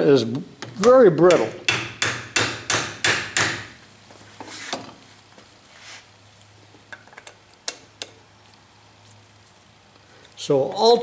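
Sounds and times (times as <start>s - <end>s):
hammer knocking on metal: 1.2s - 3.7s.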